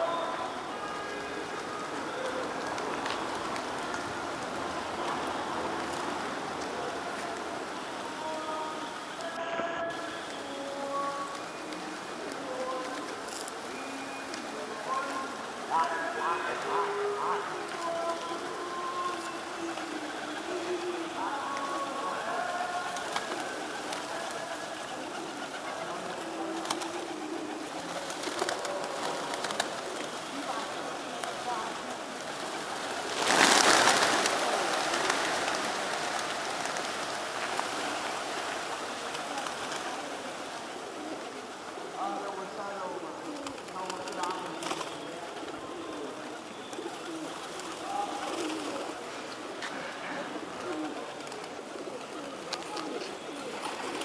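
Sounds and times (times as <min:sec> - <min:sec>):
pigeon wings fluttering: 0:01.2 - 0:07.6, 0:16.8 - 0:42.0, 0:43.2 - 0:49.6, 0:50.3 - 0:54.0
pigeons cooing: 0:11.5 - 0:42.2, 0:43.1 - 0:54.0.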